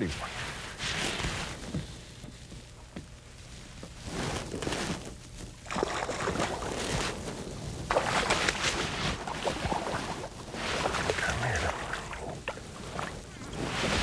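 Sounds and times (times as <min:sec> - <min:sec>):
fish thrashing water splashing: 0:05.6 - 0:06.9, 0:07.9 - 0:13.1.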